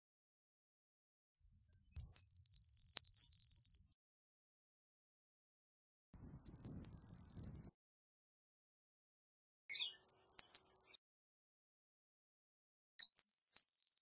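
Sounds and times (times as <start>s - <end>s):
blue tit singing trill: 1.4s - 4.0s, 6.2s - 7.7s, 9.7s - 11.0s, 13.0s - 14.0s.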